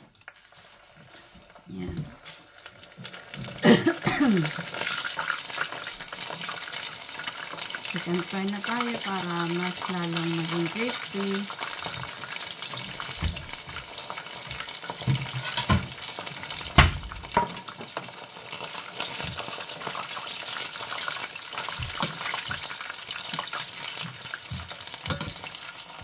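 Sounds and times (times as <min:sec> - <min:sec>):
chicken deep-frying in oil: 0:00.0 - 0:26.0
metal tongs clinking on pot: 0:25.0 - 0:25.6.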